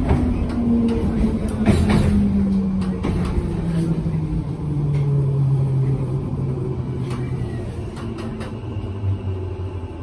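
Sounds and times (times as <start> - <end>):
low train rumble: 0.0 - 10.0.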